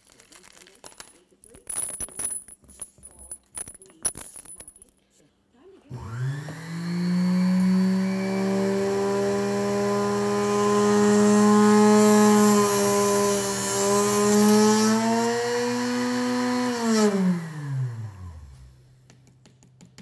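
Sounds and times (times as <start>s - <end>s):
electric saw running: 5.9s - 18.5s.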